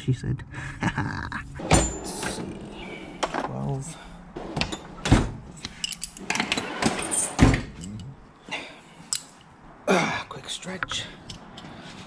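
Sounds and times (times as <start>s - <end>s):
metal wrenches clinking: 1.6s - 2.5s, 4.6s - 8.2s, 9.0s - 9.5s.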